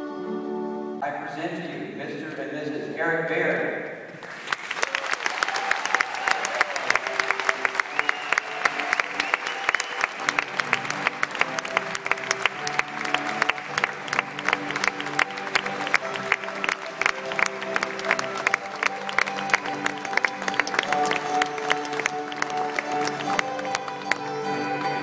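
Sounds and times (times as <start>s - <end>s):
instrumental church music: 0.0s - 4.7s, 5.7s - 25.0s
congregation applauding: 4.1s - 25.0s.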